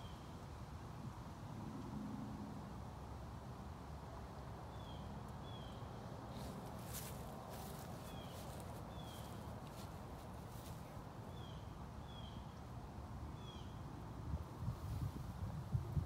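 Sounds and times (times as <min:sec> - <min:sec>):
small bird chirping: 0:07.6 - 0:09.9.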